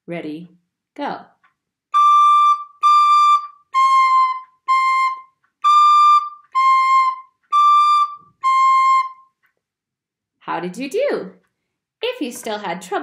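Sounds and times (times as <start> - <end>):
recorder playing held notes: 1.9 - 9.5.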